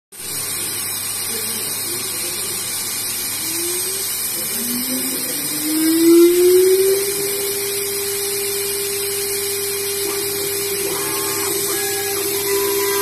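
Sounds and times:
milling machine spindle whine: 0:00.3 - 0:13.0
low tone rising in pitch: 0:04.6 - 0:13.0.

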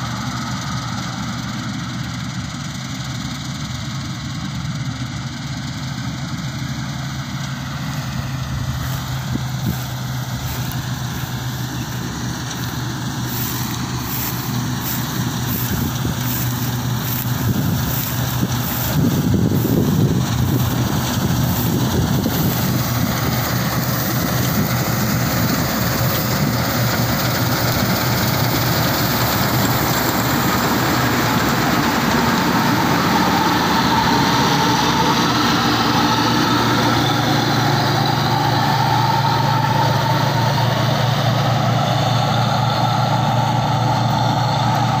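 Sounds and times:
combine harvester running: 0:00.0 - 0:45.0
steady rushing noise: 0:08.0 - 0:35.8.

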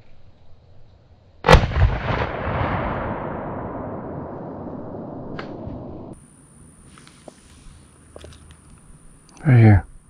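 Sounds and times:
shotgun shot: 0:01.4 - 0:06.1.

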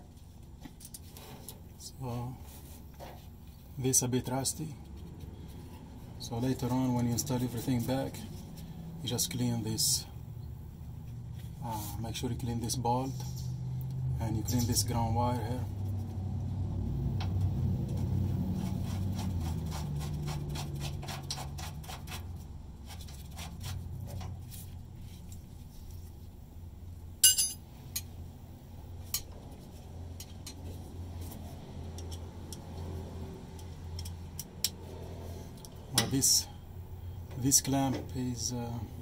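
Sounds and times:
sharp metal clink: 0:27.2 - 0:28.1.

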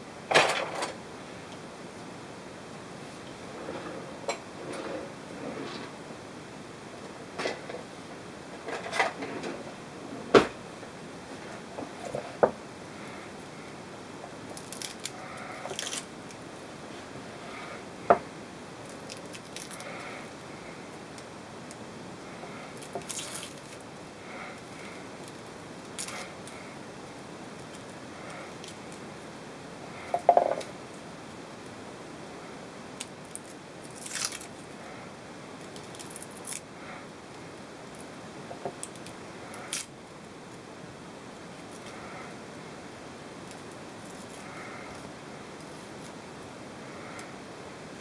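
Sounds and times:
garlic skins rustling: 0:22.6 - 0:26.7, 0:33.3 - 0:34.7.

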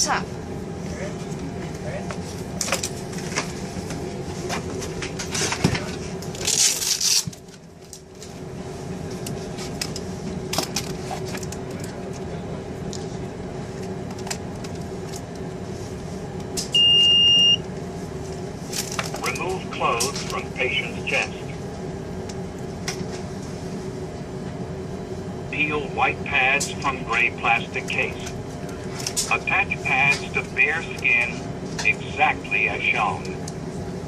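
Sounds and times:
airliner cabin hum: 0:00.0 - 0:34.0.

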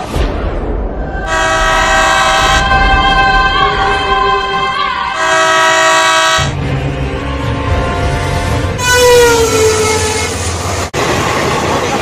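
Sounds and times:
train rumble: 0:00.0 - 0:12.0
locomotive horn blasts: 0:01.3 - 0:10.5.

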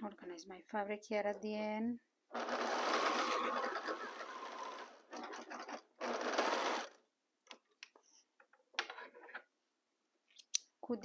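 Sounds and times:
electric sewing machine stitching: 0:02.3 - 0:07.0.

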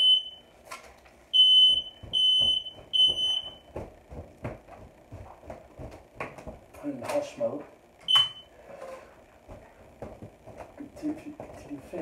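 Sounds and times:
smoke alarm beeping: 0:00.0 - 0:00.5, 0:01.3 - 0:03.7, 0:08.1 - 0:08.6.

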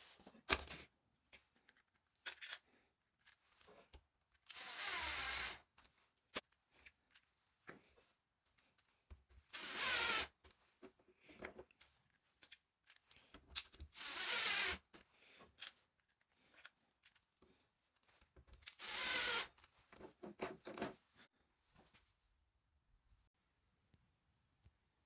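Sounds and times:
small clicks and handling noises: 0:00.3 - 0:04.6, 0:05.7 - 0:09.5, 0:10.4 - 0:14.0, 0:14.9 - 0:18.8
cordless drill driving screws: 0:04.5 - 0:05.6, 0:09.5 - 0:10.3, 0:13.9 - 0:14.9, 0:18.6 - 0:19.6.

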